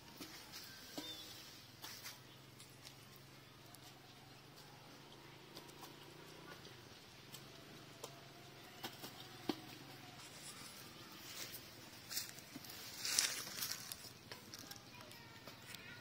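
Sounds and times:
birds pecking in metal bowl: 0:00.0 - 0:16.0.

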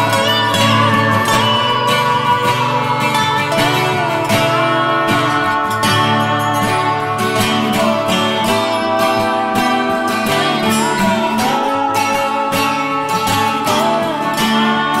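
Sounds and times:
strummed acoustic guitar tune: 0:00.0 - 0:15.0.

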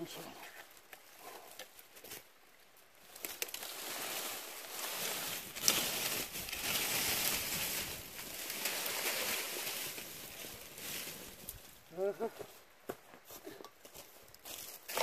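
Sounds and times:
twigs and leaves rustling: 0:00.0 - 0:15.0
twigs snapping: 0:03.1 - 0:11.6.

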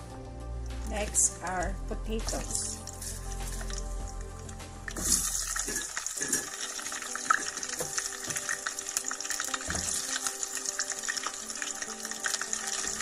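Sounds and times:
potatoes sizzling in hot oil: 0:04.9 - 0:13.0.

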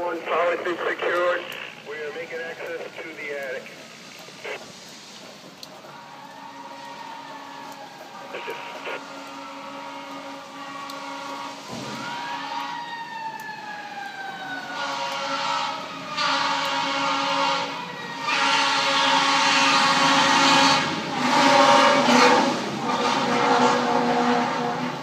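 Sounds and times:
air horn blasts: 0:08.4 - 0:12.8, 0:14.7 - 0:25.0.

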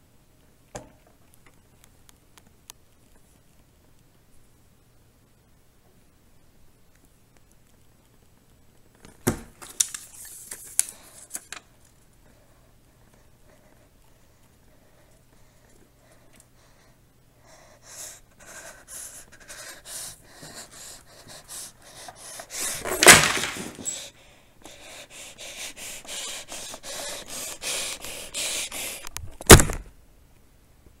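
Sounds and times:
cardboard and paper rustling: 0:09.0 - 0:11.7, 0:22.6 - 0:24.1.

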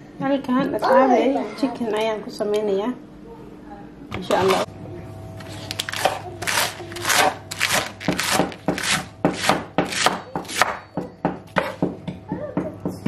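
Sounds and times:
knife chopping lettuce on board: 0:05.9 - 0:10.8.

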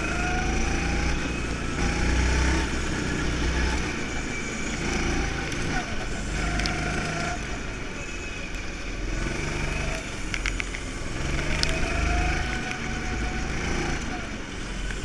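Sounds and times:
go-kart engine revving: 0:00.0 - 0:15.0
short clicks: 0:10.3 - 0:12.9.

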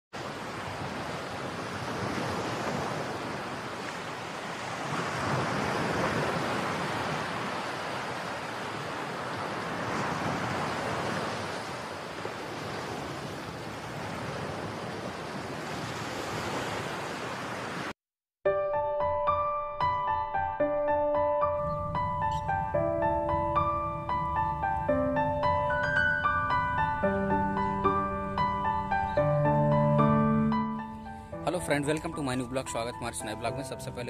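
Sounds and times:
waves washing against stony bank: 0:00.2 - 0:17.9.

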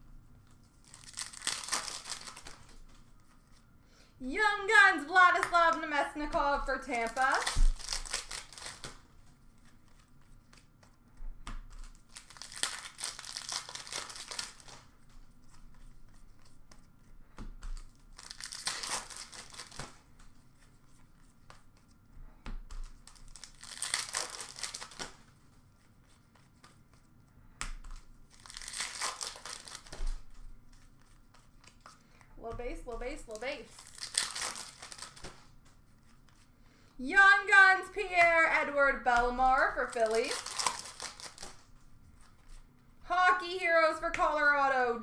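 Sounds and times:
card pack wrappers tearing: 0:00.8 - 0:02.8, 0:06.8 - 0:09.1, 0:11.8 - 0:14.9, 0:18.1 - 0:19.9, 0:23.0 - 0:25.2, 0:28.3 - 0:30.2, 0:33.2 - 0:35.5, 0:39.5 - 0:41.6.

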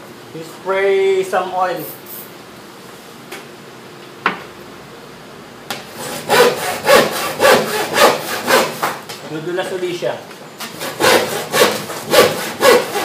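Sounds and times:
handsaw cutting plywood: 0:05.9 - 0:09.0, 0:10.6 - 0:13.0.

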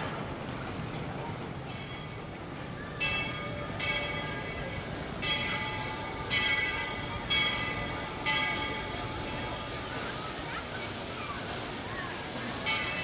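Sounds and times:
train rumbling: 0:00.0 - 0:13.0
locomotive bell ringing: 0:01.6 - 0:10.5, 0:12.6 - 0:13.0.

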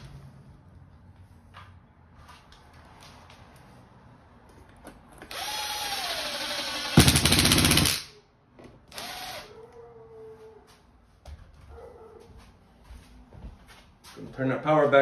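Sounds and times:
impact driver motor whining: 0:05.3 - 0:08.0, 0:08.9 - 0:09.5.

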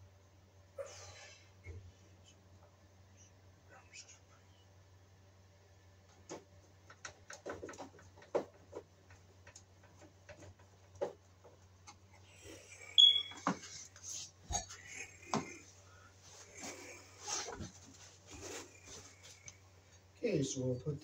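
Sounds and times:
rustling and shuffling: 0:05.9 - 0:12.3, 0:13.3 - 0:20.1
sharp high squeak: 0:13.0 - 0:13.5.

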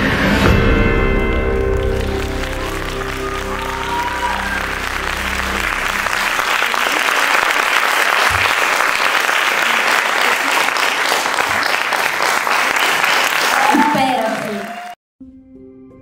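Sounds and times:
music: 0:00.0 - 0:06.6, 0:15.2 - 0:16.0
audience applause: 0:01.6 - 0:15.0.

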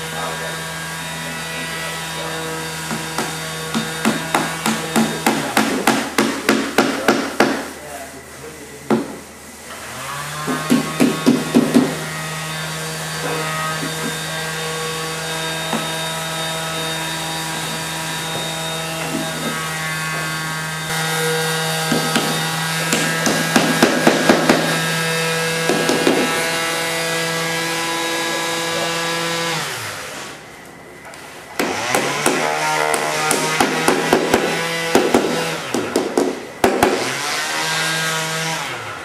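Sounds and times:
power tool motor running: 0:09.7 - 0:30.5.

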